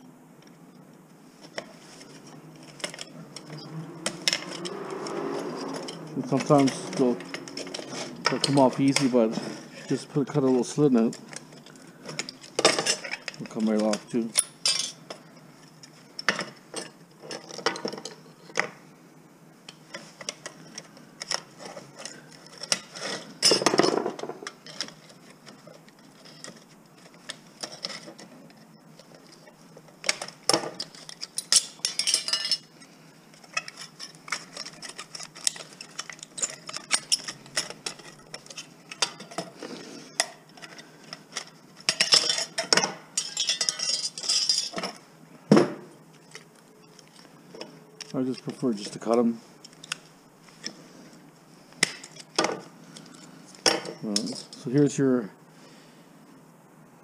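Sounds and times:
small metal parts clinking: 0:02.6 - 0:18.7, 0:19.7 - 0:45.0, 0:51.8 - 0:54.8.

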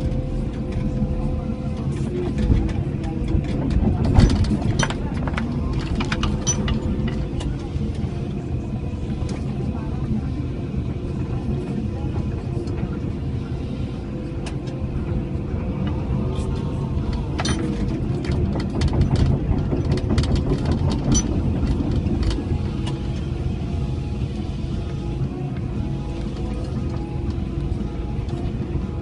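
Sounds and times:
excavator diesel engine under load: 0:00.0 - 0:29.0
sharp clicks and rattles: 0:02.2 - 0:08.1, 0:15.8 - 0:23.4.

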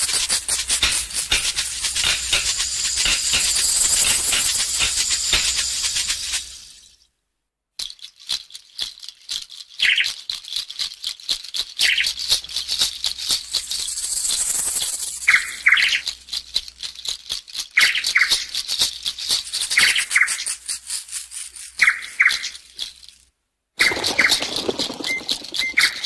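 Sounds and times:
dense rattling clicks: 0:00.0 - 0:06.5, 0:10.3 - 0:17.7, 0:23.8 - 0:26.0.

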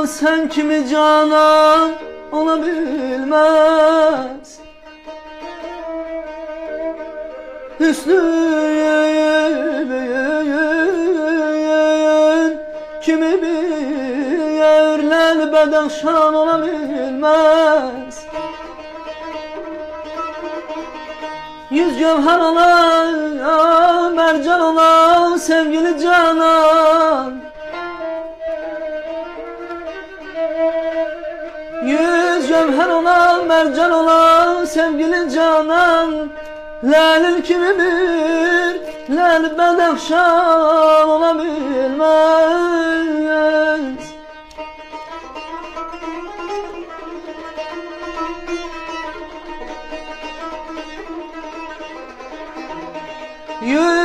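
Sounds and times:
man singing ornamented phrases: 0:00.0 - 0:04.7, 0:07.7 - 0:18.4, 0:21.7 - 0:27.5, 0:30.8 - 0:44.2, 0:53.6 - 0:54.0
plucked and bowed strings: 0:00.0 - 0:54.0.

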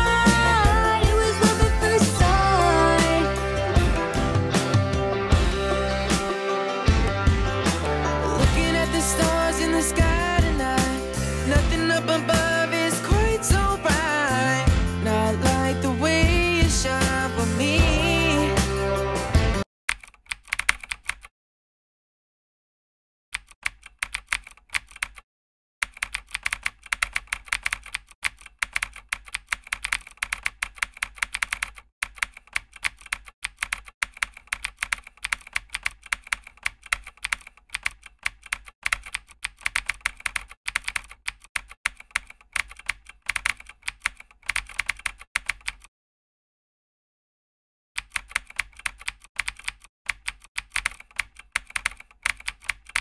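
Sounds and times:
keyboard typing clicks: 0:19.9 - 0:21.3, 0:23.4 - 0:25.2, 0:25.8 - 0:45.9, 0:48.0 - 0:53.0.

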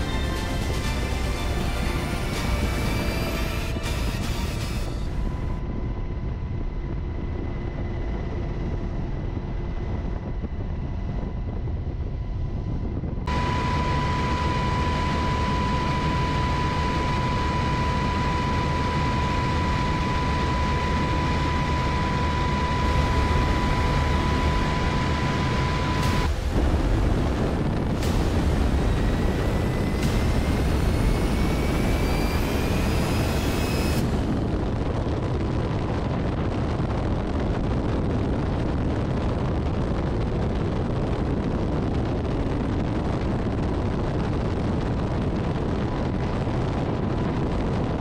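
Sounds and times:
thin high whine: 0:00.0 - 0:07.5, 0:12.2 - 0:38.6
helicopter cabin drone: 0:00.0 - 0:48.0.

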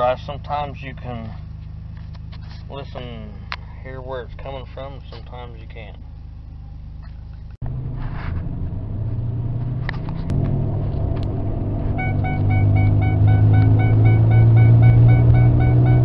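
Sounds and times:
truck cab road drone: 0:00.0 - 0:16.0
rapid repeating beep: 0:12.0 - 0:16.0.

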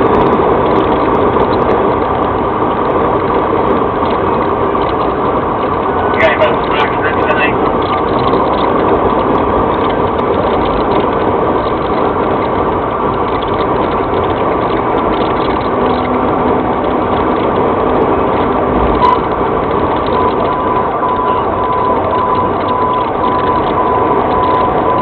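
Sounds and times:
car interior road noise: 0:00.0 - 0:25.0
repeated high beep: 0:19.0 - 0:19.3, 0:20.1 - 0:25.0.

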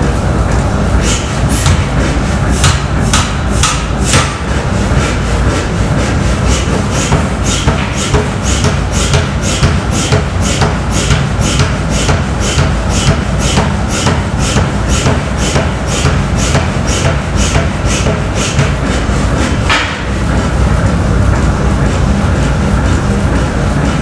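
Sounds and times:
hammer machine rumbling: 0:00.0 - 0:24.0
power hammer blows on metal: 0:01.0 - 0:04.5, 0:06.4 - 0:20.1.

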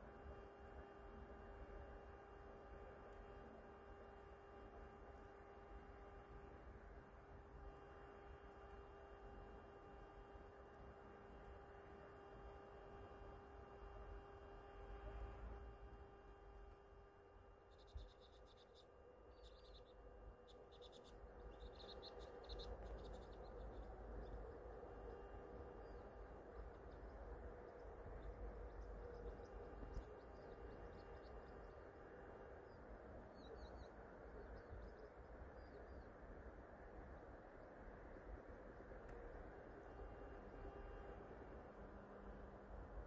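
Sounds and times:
faint small bird chirps: 0:17.4 - 0:36.5.

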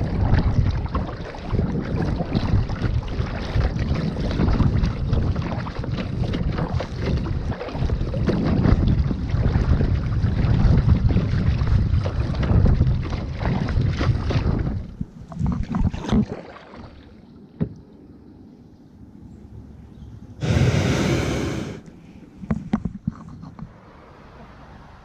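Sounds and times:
wind buffeting microphone: 0:00.0 - 0:16.0
water slapping on kayak: 0:00.0 - 0:17.8.

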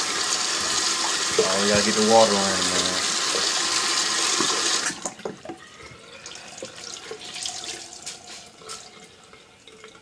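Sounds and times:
water running from sink tap: 0:00.0 - 0:05.4, 0:06.0 - 0:10.0
water dripping and splashing: 0:06.6 - 0:10.0.

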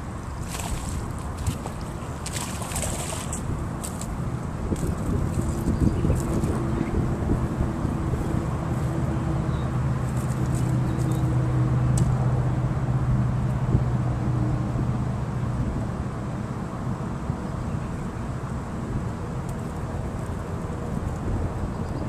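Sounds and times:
wind noise: 0:00.0 - 0:10.8.

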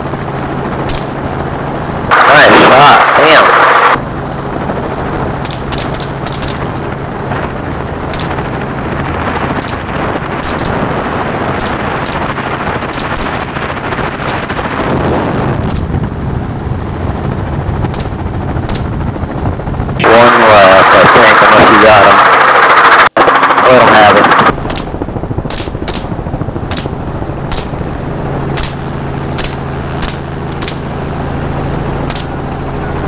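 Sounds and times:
helicopter running: 0:00.0 - 0:33.0
sharp gunshots: 0:00.8 - 0:01.2, 0:02.1 - 0:04.0, 0:05.4 - 0:06.7, 0:08.1 - 0:08.4, 0:09.5 - 0:14.9, 0:20.0 - 0:27.9, 0:28.5 - 0:30.9, 0:32.0 - 0:32.4.

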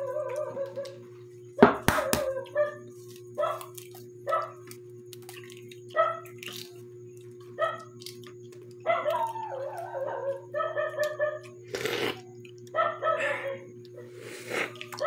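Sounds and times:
electrical hum: 0:00.0 - 0:15.0
dog whining: 0:08.9 - 0:11.4.

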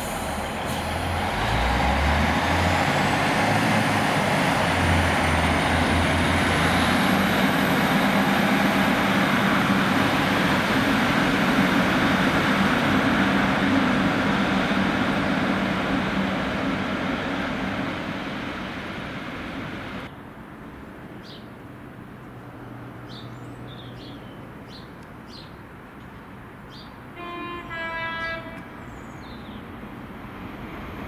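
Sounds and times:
train running past: 0:00.0 - 0:20.1.

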